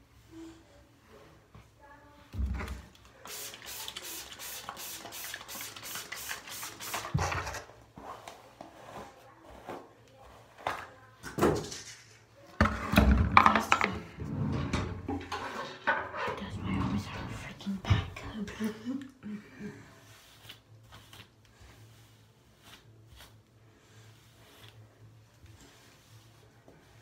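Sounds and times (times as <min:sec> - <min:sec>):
hairbrush strokes through hair: 0:08.0 - 0:10.9, 0:19.8 - 0:27.0
objects handled and knocking: 0:10.6 - 0:16.1.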